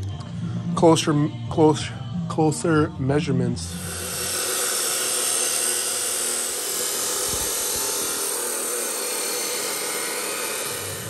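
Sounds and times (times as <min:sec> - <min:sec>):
chop saw grinding steel pipe: 0:03.6 - 0:11.0.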